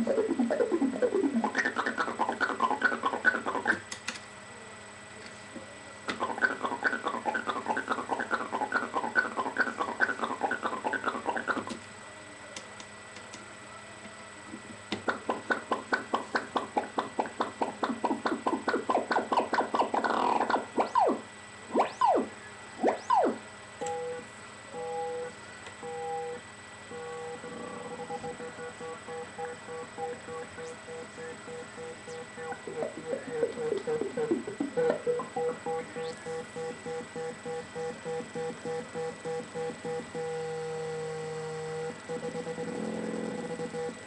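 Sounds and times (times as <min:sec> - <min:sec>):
downward-swooping synth tones: 0:00.0 - 0:03.3, 0:20.8 - 0:23.4, 0:27.4 - 0:36.4
synthesizer plucked notes: 0:00.0 - 0:03.8, 0:15.1 - 0:24.3, 0:27.3 - 0:37.1
on-off beeps on two pitches: 0:21.8 - 0:40.6.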